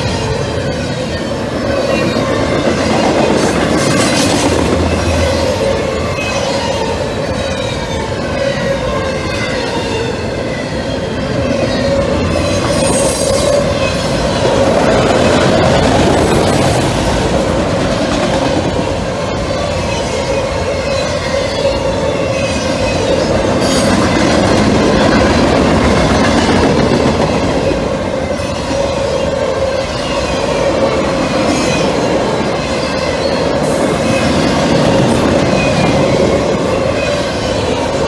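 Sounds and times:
steel wheels rumbling on rail: 0.0 - 38.0
wheels squealing: 4.8 - 17.2.

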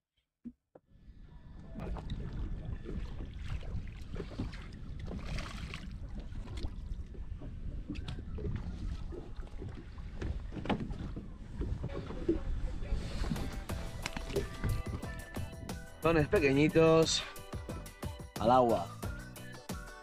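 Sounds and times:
water against boat hull: 0.8 - 16.6
wind buffeting microphone: 1.0 - 15.9
fishing gear clicks and knocks: 13.2 - 15.6.

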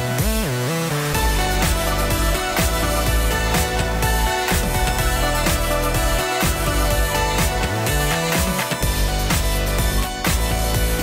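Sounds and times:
music with steady beat and bass: 0.0 - 11.0.

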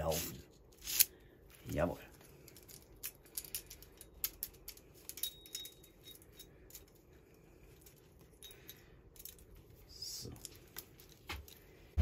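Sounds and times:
saw chain clinking: 2.4 - 7.0.

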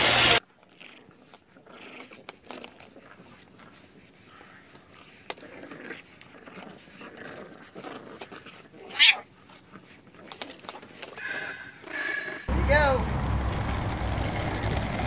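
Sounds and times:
puppies snuffling: 0.4 - 12.5
puppy yelping: 7.6 - 12.5.

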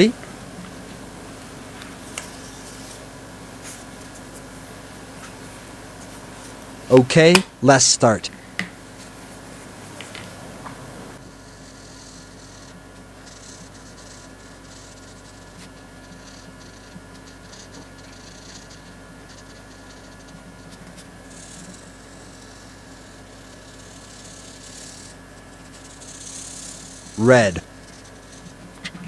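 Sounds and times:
steady electrical hum: 0.0 - 29.0
marker scratching on paper: 2.0 - 4.5, 11.2 - 29.0.

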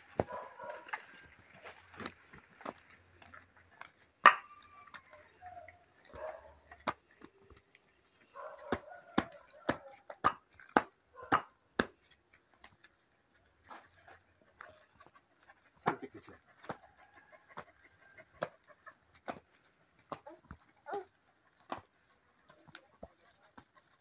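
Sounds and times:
flip-flop footsteps slapping: 19.1 - 20.6.

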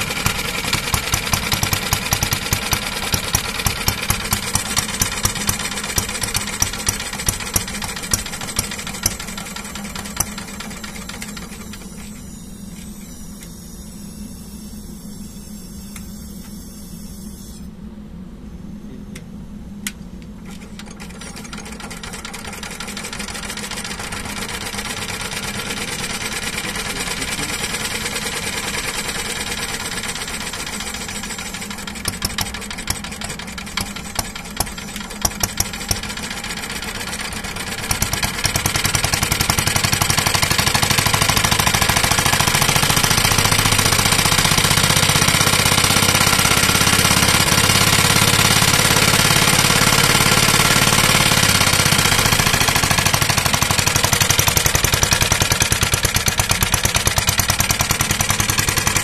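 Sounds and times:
sharp irregular clicks: 0.0 - 11.9, 20.8 - 45.7
single-cylinder engine running: 0.0 - 12.9, 19.8 - 59.0.

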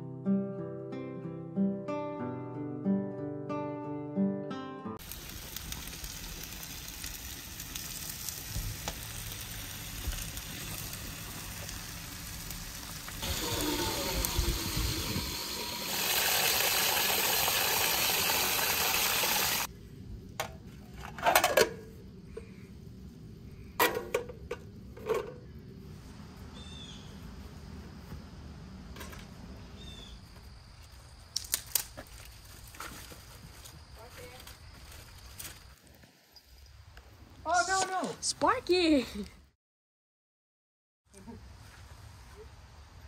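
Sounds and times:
hose water pouring into metal vessel: 5.0 - 19.7.

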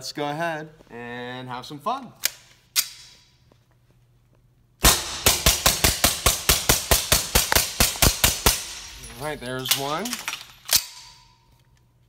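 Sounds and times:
suppressed pistol shots: 4.8 - 9.0.

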